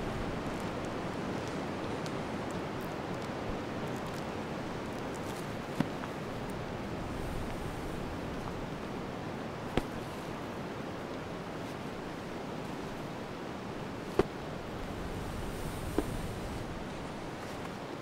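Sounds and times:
wind in forest: 0.0s - 18.0s.

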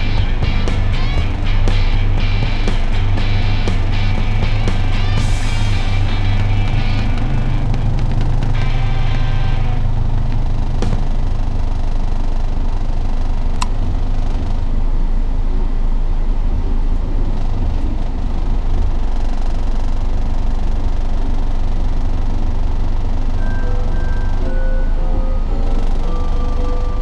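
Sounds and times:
car engine low rumble: 0.0s - 27.0s.

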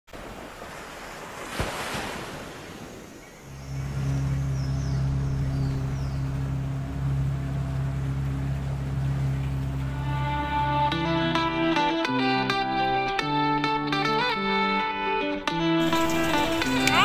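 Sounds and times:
sea water washing: 0.1s - 11.4s, 15.8s - 17.0s
steady low drone: 3.5s - 12.0s, 15.8s - 17.0s.

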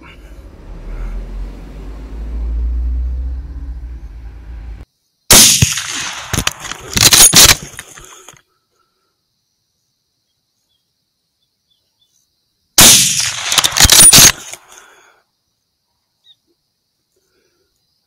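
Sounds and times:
low rumble: 0.0s - 4.9s
rifle shot: 5.3s - 7.9s, 12.8s - 14.7s.

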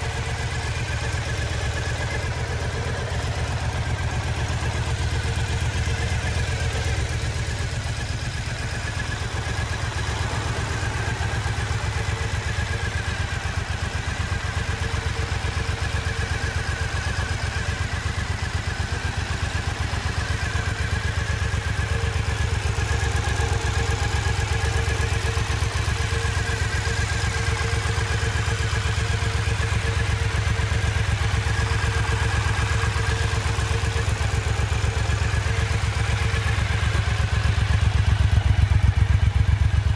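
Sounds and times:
motorcycle engine idling: 0.0s - 39.9s.

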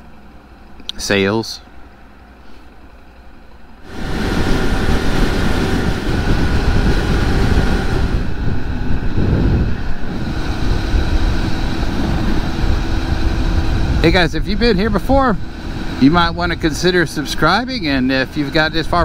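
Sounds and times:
motorcycle engine running: 3.0s - 19.0s
wind rushing over microphone: 3.8s - 19.0s.

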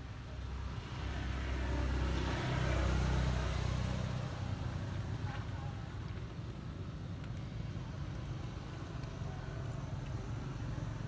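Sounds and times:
vehicle passing by: 0.6s - 4.9s.

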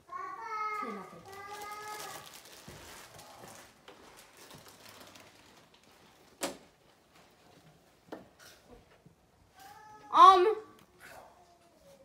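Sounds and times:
people shuffling and rustling: 0.8s - 9.9s.

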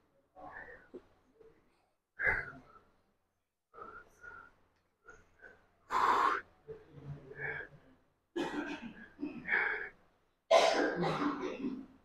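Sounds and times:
man breathing hard: 3.7s - 6.5s.

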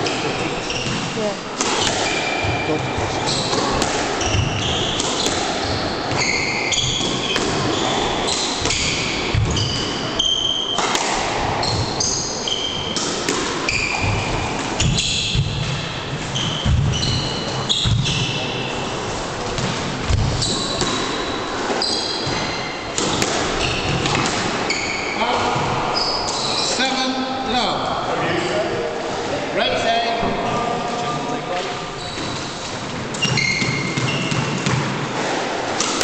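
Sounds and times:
trainers squeaking on wooden floor: 0.0s - 10.8s, 13.7s - 19.2s, 31.7s - 34.6s
squash ball thuds: 0.8s - 12.2s, 32.9s - 36.0s.

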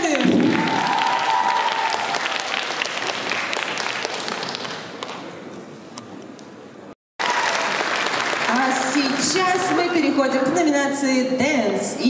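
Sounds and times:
audience applauding: 0.0s - 5.4s, 7.2s - 10.0s.

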